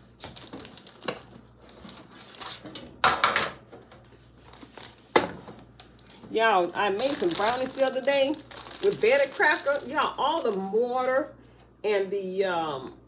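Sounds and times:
plastic rustling: 0:00.0 - 0:02.7, 0:03.7 - 0:11.3.

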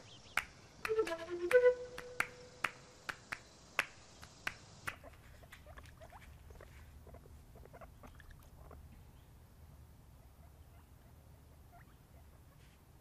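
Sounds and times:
guinea pig squeaking: 0:05.0 - 0:08.8, 0:10.2 - 0:12.4.

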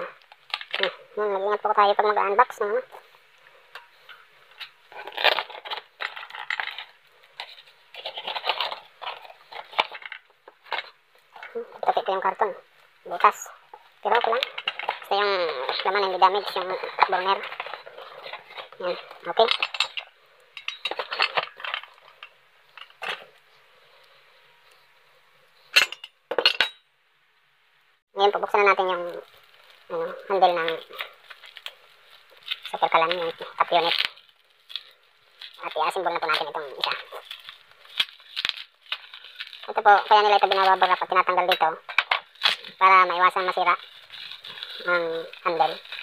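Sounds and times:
metal burner parts clinking: 0:03.7 - 0:11.6, 0:14.1 - 0:23.3, 0:25.7 - 0:26.8.

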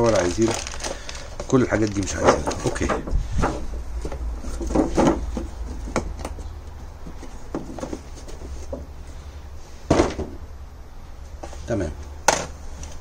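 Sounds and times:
cardboard rustling: 0:00.0 - 0:08.9.

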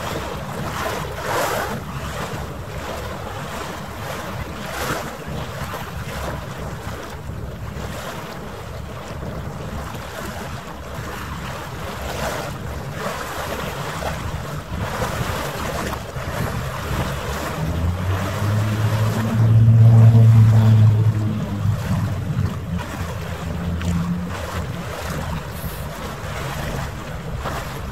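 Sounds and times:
wind buffeting microphone: 0:00.0 - 0:27.9
low steady drone: 0:17.4 - 0:26.2.

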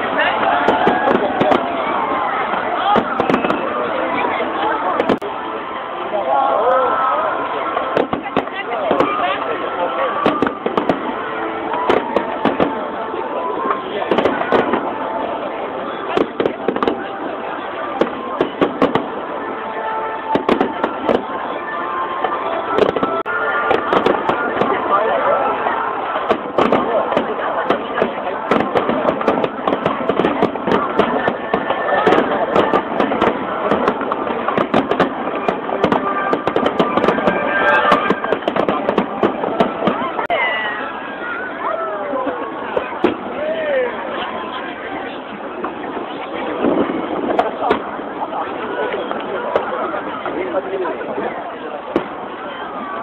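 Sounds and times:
firework bangs: 0:00.0 - 0:05.3, 0:07.7 - 0:40.9, 0:42.7 - 0:43.4, 0:44.0 - 0:53.0.

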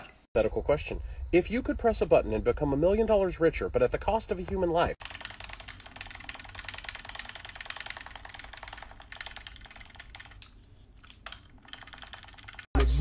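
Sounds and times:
controller buttons clicking: 0:05.0 - 0:12.7.

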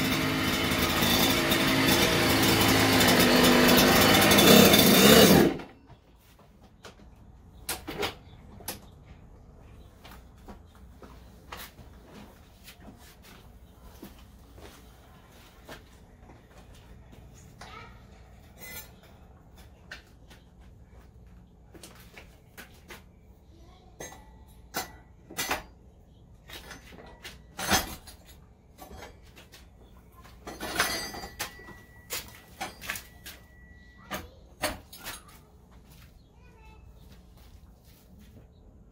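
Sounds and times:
clatter of parts: 0:30.3 - 0:35.4.

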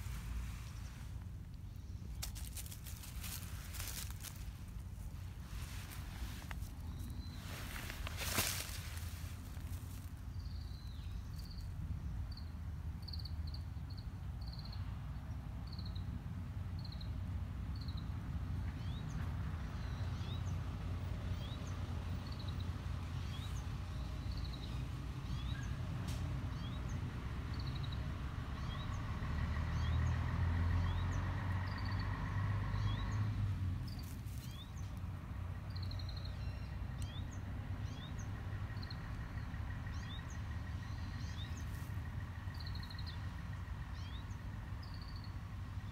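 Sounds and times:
small birds chirping: 0:00.0 - 0:14.9, 0:32.7 - 0:45.9
distant traffic rumble: 0:00.0 - 0:45.9
passing vehicle hum: 0:00.0 - 0:45.9.

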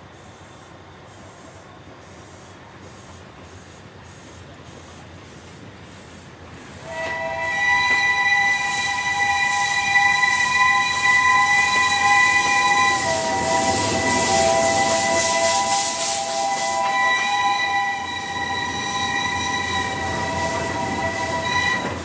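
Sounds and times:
steam hissing: 0:00.0 - 0:22.0
steam locomotive whistle blast: 0:06.8 - 0:22.0.

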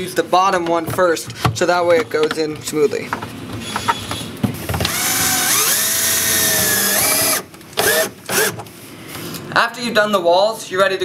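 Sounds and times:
cordless drill whining: 0:04.9 - 0:08.6.

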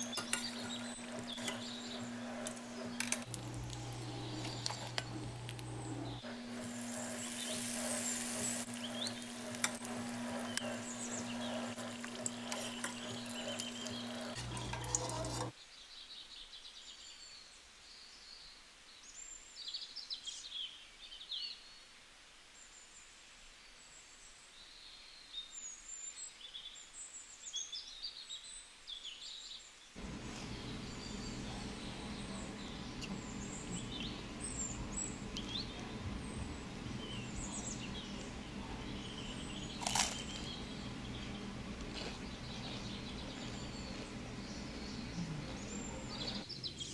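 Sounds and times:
birds chirping: 0:00.0 - 0:15.5, 0:30.0 - 0:46.9
electric hum: 0:00.0 - 0:15.5
hot oil sizzling in frying pan: 0:06.5 - 0:15.5.

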